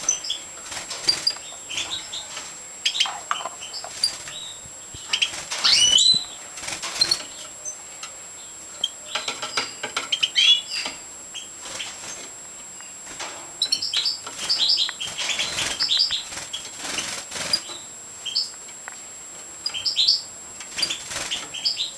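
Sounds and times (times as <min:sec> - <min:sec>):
wing flutters: 0:00.0 - 0:07.6, 0:11.6 - 0:12.4, 0:13.0 - 0:17.8, 0:20.6 - 0:21.8
finches twittering: 0:00.0 - 0:18.6, 0:19.6 - 0:21.9.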